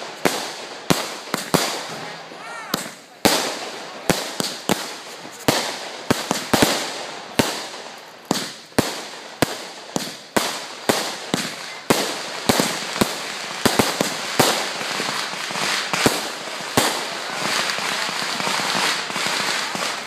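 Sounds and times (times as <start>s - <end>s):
fireworks bangs: 0.0s - 20.0s
crackle of sparks: 4.0s - 20.0s.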